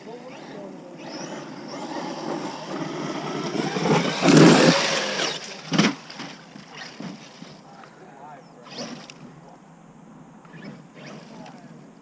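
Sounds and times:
electric motor whine: 0:00.0 - 0:05.6
tyre noise on dirt: 0:01.0 - 0:07.8.

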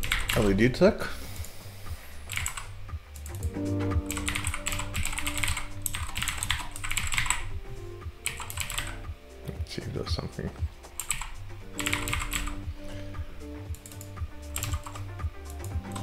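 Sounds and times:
typing on computer keyboard: 0:00.0 - 0:00.5, 0:02.3 - 0:03.4, 0:04.1 - 0:07.4, 0:08.2 - 0:09.0, 0:11.0 - 0:12.6, 0:13.8 - 0:16.0
background music: 0:00.0 - 0:16.0.

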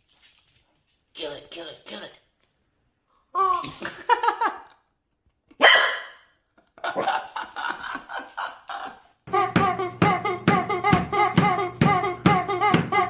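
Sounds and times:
puppy barking: 0:05.6 - 0:06.3
music with strummed beat: 0:09.3 - 0:13.0.

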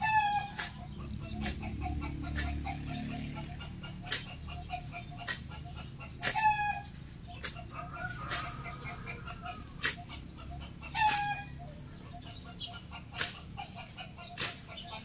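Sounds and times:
bird calling: 0:00.0 - 0:15.0
blade swishing through grass: 0:04.1 - 0:04.4, 0:06.2 - 0:06.6, 0:11.0 - 0:11.4, 0:13.2 - 0:15.0.

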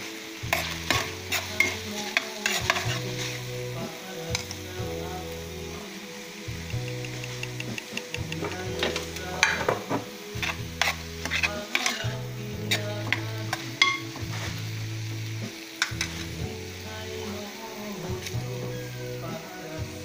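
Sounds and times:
vegetables sizzling in a pan: 0:00.0 - 0:20.0
utensil scraping metal pan: 0:00.5 - 0:03.4, 0:08.3 - 0:12.1.

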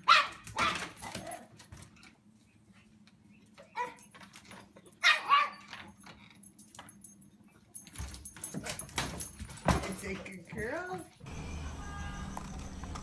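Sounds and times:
dog barking: 0:00.0 - 0:01.0, 0:05.0 - 0:05.7.

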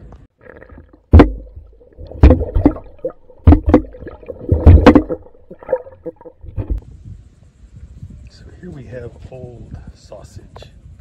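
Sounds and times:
fish feeding thumps and gurgles: 0:00.3 - 0:06.8.

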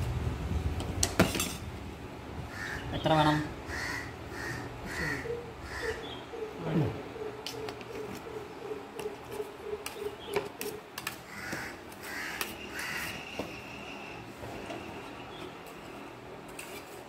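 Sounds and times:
crows cawing: 0:02.5 - 0:02.9, 0:03.7 - 0:06.6, 0:11.2 - 0:13.7.

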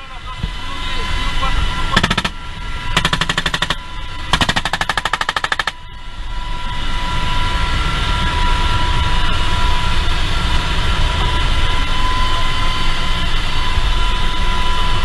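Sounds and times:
helicopter engine and rotor noise: 0:00.0 - 0:15.0
machine-gun fire: 0:02.0 - 0:02.4, 0:03.0 - 0:05.8.

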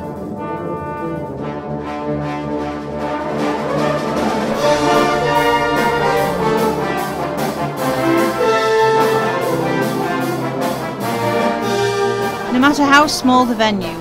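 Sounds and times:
brass band playing held chords: 0:00.0 - 0:14.0.

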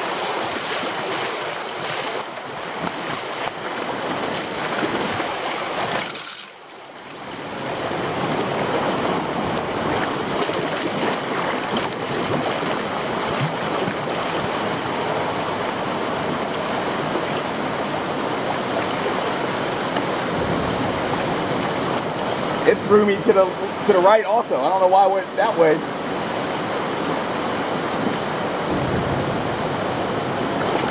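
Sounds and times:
river rapids rushing: 0:00.0 - 0:30.9.

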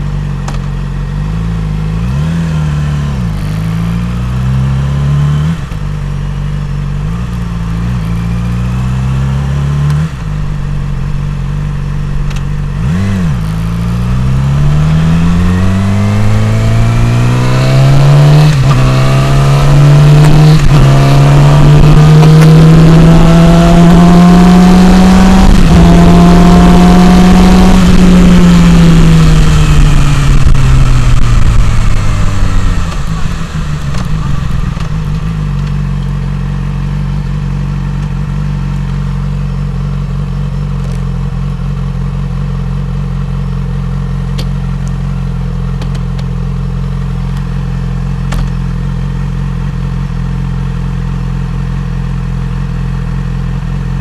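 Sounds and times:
motorcycle engine revving: 0:00.0 - 0:54.0
motorcycle engine idling: 0:10.2 - 0:14.2, 0:31.6 - 0:54.0
wind rush: 0:27.4 - 0:35.4.

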